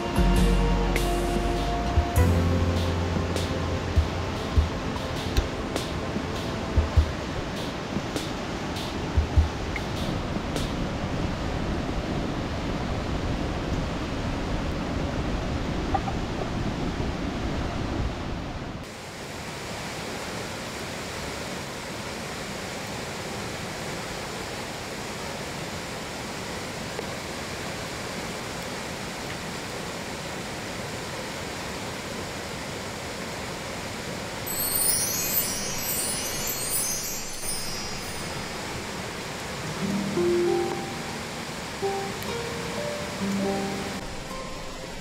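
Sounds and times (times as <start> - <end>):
steady rushing noise: 0.0 - 21.2.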